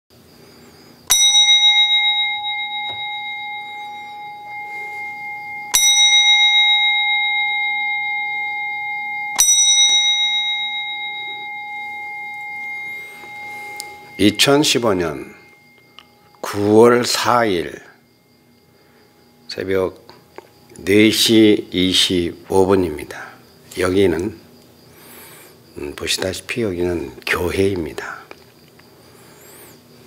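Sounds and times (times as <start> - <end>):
bell ringing: 1.1 - 18.0.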